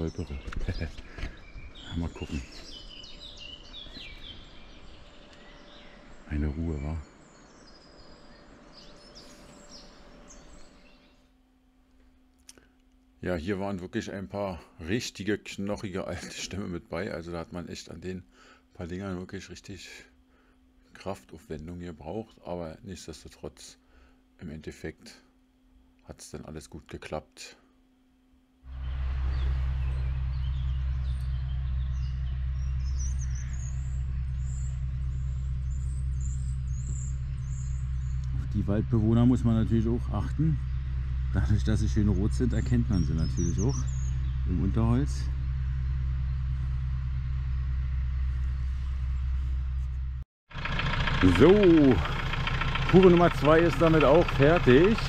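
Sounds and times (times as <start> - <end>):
small birds chirping: 0.0 - 11.4, 28.7 - 49.6, 51.2 - 55.0
truck engine idling: 28.7 - 55.0.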